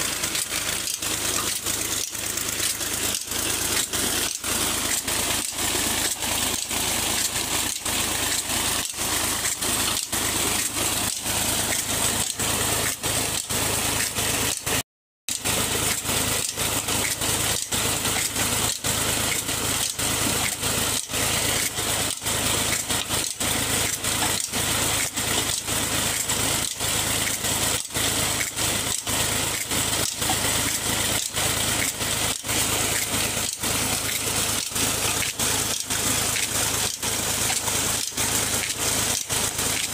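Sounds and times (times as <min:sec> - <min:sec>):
tractor diesel engine running: 0:00.0 - 0:39.9.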